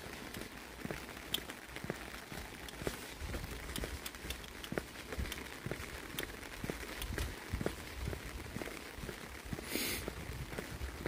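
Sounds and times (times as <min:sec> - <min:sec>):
footsteps on wet asphalt: 0:00.0 - 0:11.0
light rain hiss: 0:00.0 - 0:11.0
raindrops ticking: 0:00.0 - 0:11.0.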